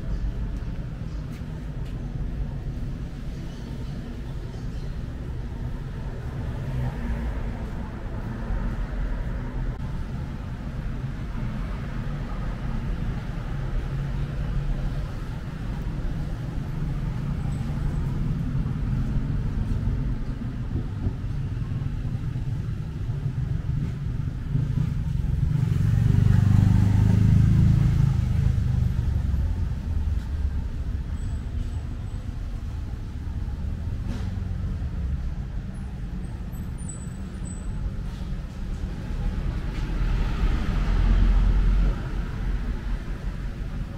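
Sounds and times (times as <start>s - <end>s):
vehicle engine and road rumble: 0.0s - 43.9s.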